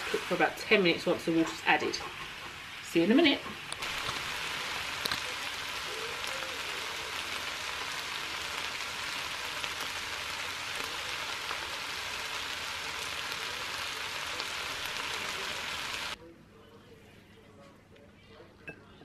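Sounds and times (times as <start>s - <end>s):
food sizzling in a frying pan: 0.0s - 16.2s.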